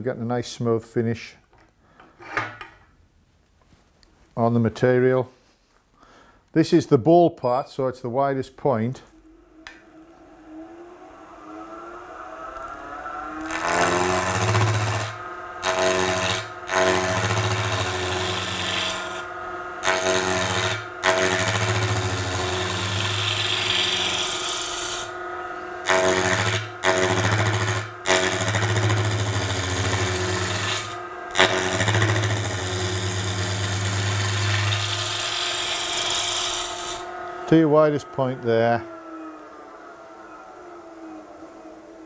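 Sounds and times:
lathe humming: 0:08.3 - 0:42.0
gouge rasping on spinning wood: 0:13.4 - 0:25.1, 0:25.9 - 0:37.0.

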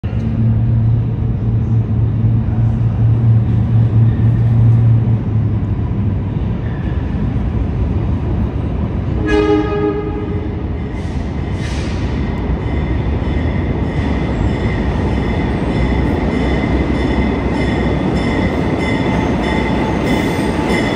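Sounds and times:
diesel locomotive drone: 0:00.0 - 0:20.9
locomotive horn blast: 0:09.2 - 0:10.6.

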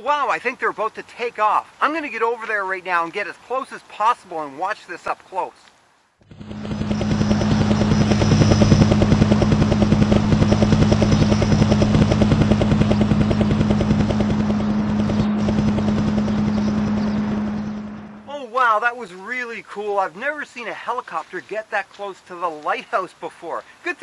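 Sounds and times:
helicopter rotor chop: 0:06.2 - 0:18.3.

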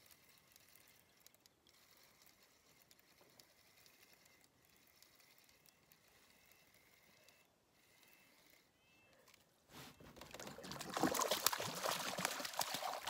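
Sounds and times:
fishing reel ticking: 0:00.0 - 0:09.4.

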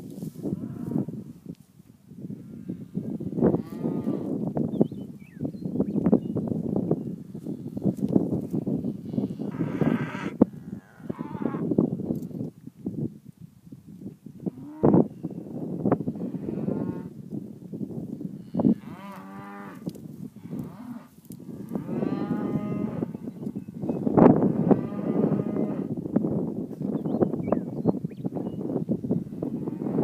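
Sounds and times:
cattle mooing: 0:21.7 - 0:23.1.

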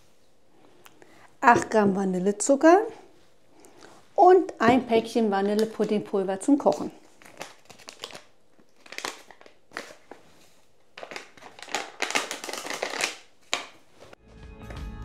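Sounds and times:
paper sachet tearing and crinkling: 0:07.0 - 0:10.2, 0:10.9 - 0:13.8.

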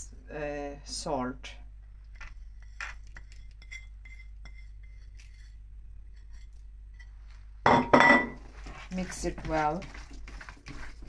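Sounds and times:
ceramic dishes clinking: 0:07.7 - 0:08.4
dishes clattering: 0:07.7 - 0:08.4.

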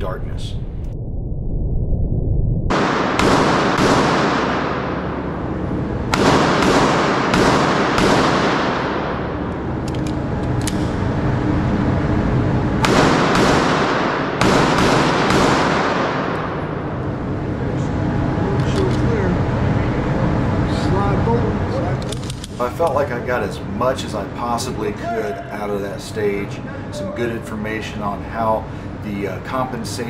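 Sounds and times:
pistol gunshots echoing: 0:02.7 - 0:05.3, 0:06.1 - 0:09.5, 0:12.8 - 0:16.8.

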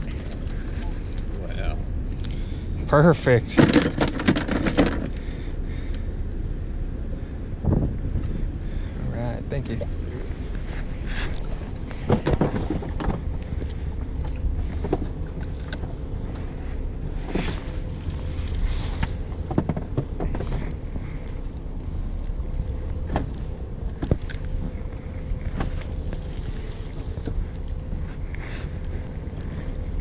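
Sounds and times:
boat engine drone: 0:00.0 - 0:30.0
sharp clicks and knocks: 0:03.5 - 0:05.2, 0:19.0 - 0:20.8.

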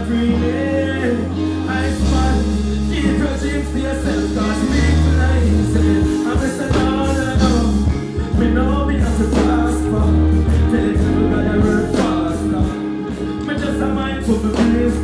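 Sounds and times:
backing track with heavy bass: 0:00.0 - 0:15.0.

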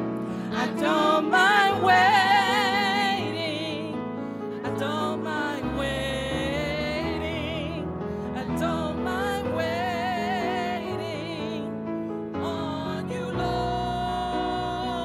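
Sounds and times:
worship team singing: 0:00.3 - 0:04.0, 0:04.6 - 0:11.7, 0:12.3 - 0:15.0
woman singing with vibrato: 0:00.5 - 0:04.0, 0:08.4 - 0:11.7.

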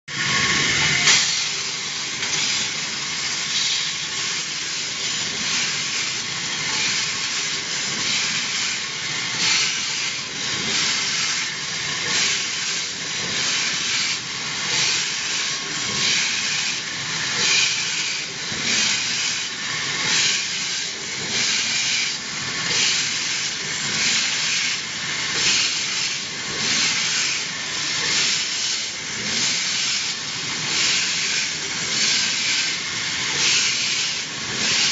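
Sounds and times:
belt sanding machine grinding metal: 0:00.1 - 0:34.9.

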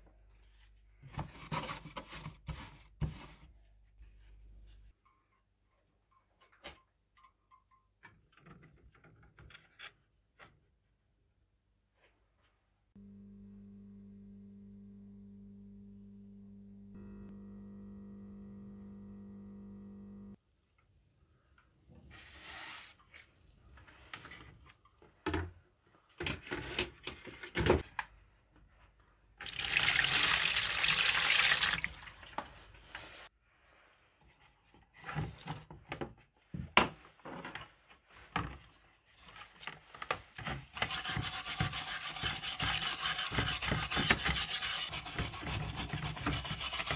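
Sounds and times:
charger electrical hum: 0:13.0 - 0:20.4
water running: 0:29.4 - 0:32.6
brush scrubbing wet tin: 0:40.7 - 0:46.9.

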